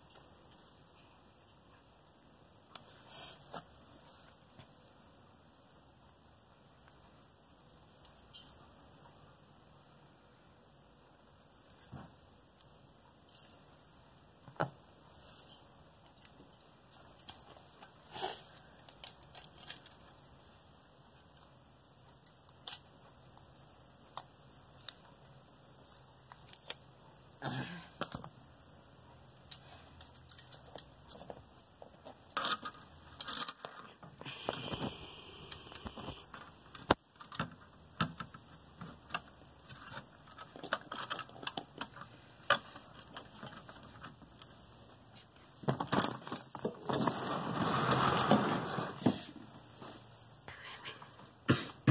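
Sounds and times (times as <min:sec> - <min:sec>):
hands handling small parts: 0:15.3 - 0:20.3, 0:29.4 - 0:34.9, 0:35.5 - 0:47.3.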